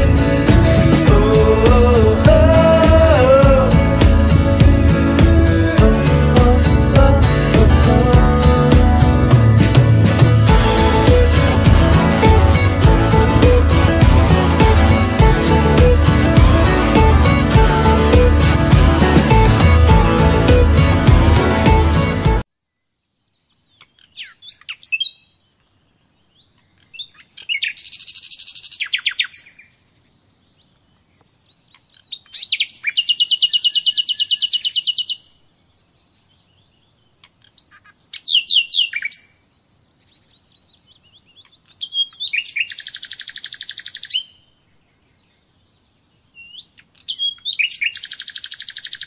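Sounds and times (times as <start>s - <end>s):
songbird whistling and trilling: 32.3s - 35.2s, 38.0s - 39.3s, 41.7s - 44.4s, 46.4s - 49.0s.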